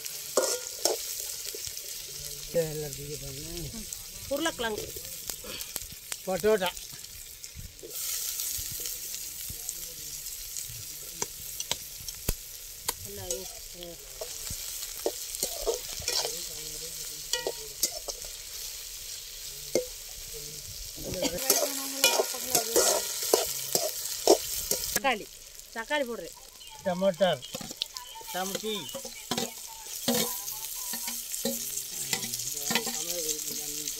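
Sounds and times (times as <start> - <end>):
vegetables sizzling in hot oil: 0.0 - 33.9
metal spoon scraping pan: 0.3 - 1.7, 14.2 - 16.5, 21.3 - 25.0, 27.5 - 33.6.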